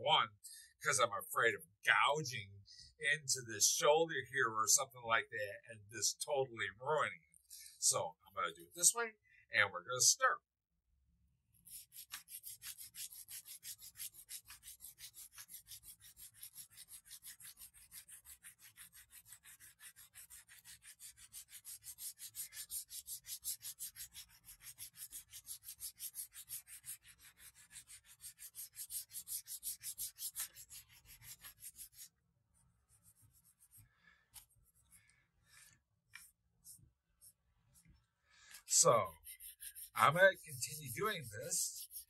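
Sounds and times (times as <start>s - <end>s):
sandpaper sanding wood by hand: 11.7s - 32.1s, 38.8s - 42.0s.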